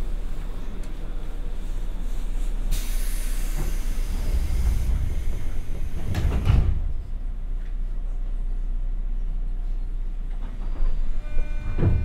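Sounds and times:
train car low hum: 0:00.0 - 0:12.0
compressed air hissing: 0:02.7 - 0:04.9.

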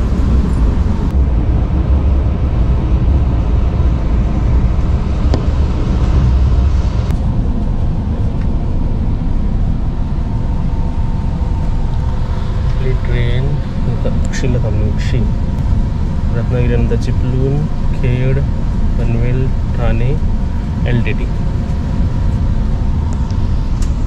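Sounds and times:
train rumble from inside coach: 0:00.0 - 0:24.0.

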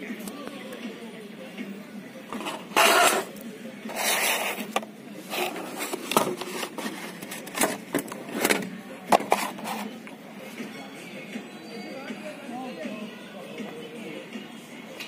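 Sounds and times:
cardboard box scraping and rustling: 0:02.4 - 0:03.3, 0:03.9 - 0:08.6.

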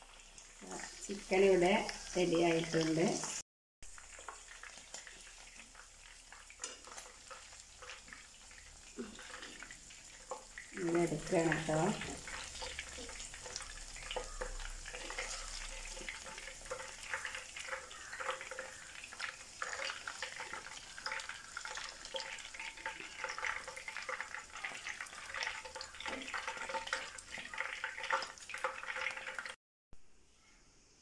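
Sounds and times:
chicken deep-frying in oil: 0:00.0 - 0:31.0
strainer and spoon turning food: 0:04.0 - 0:29.5.

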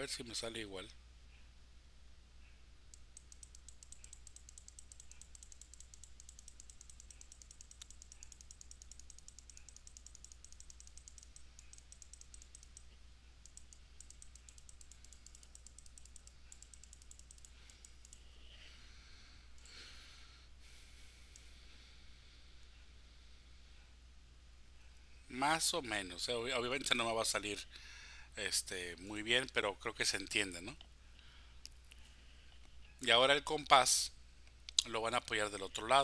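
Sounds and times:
faint rapid mouse clicking: 0:02.4 - 0:18.3.

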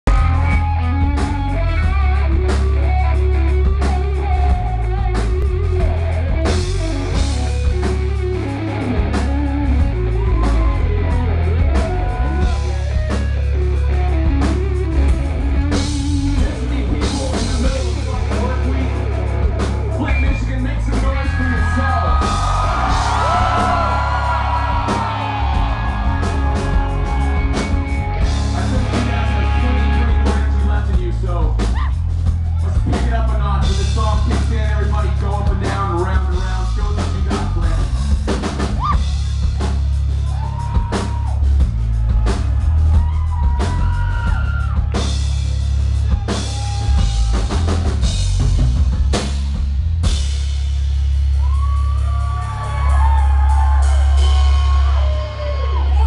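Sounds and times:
metal band playing live: 0:00.1 - 0:56.0
man singing: 0:28.4 - 0:31.7, 0:32.8 - 0:37.9.

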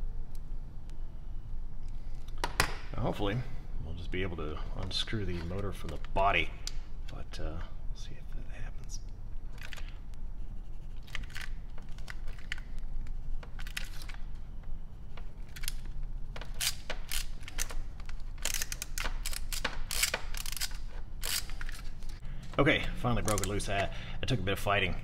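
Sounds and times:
metal and plastic clicks and creaks: 0:04.8 - 0:07.2, 0:11.0 - 0:23.9.

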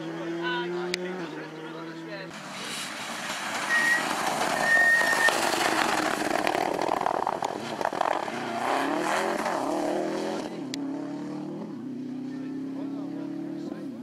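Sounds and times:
rally car engine accelerating: 0:00.0 - 0:14.0
sharp exhaust cracks: 0:02.7 - 0:08.8
high turbo whistle: 0:03.7 - 0:04.0.

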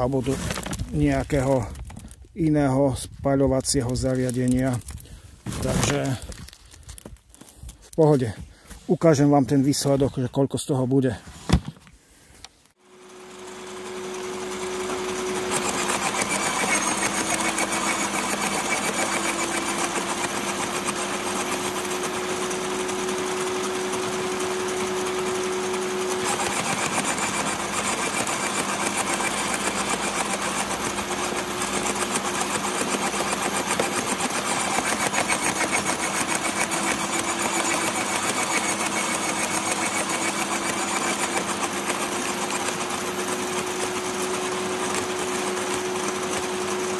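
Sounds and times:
garden shredder running: 0:12.8 - 0:46.9.

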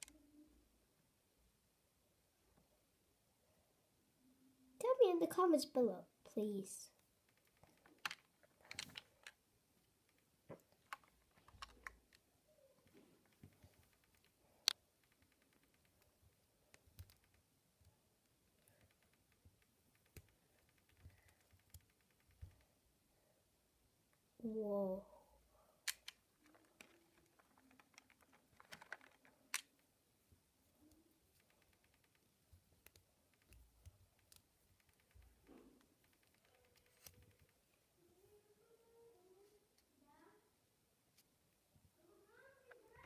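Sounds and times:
sharp clicks: 0:13.2 - 0:17.4, 0:31.3 - 0:37.6
fingers rummaging in plastic tray: 0:26.5 - 0:29.6.

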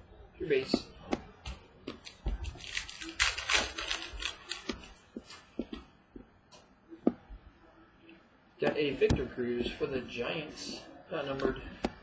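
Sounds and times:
cards clicking and tapping: 0:00.7 - 0:05.9
trading cards rustling: 0:01.9 - 0:05.6.

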